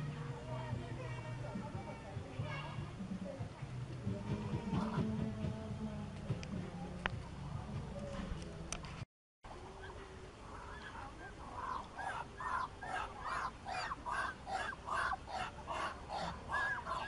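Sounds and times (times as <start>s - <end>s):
duck calling: 9.8s - 17.0s.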